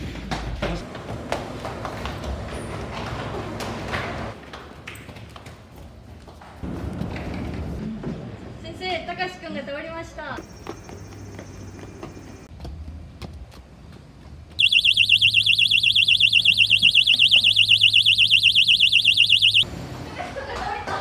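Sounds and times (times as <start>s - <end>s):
cabinet door alarm warbling: 14.6s - 19.7s.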